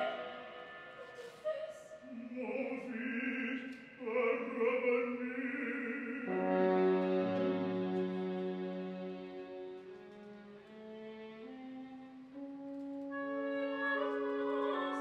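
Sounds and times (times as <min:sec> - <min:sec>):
small ensemble playing orchestral music: 0:06.2 - 0:15.0.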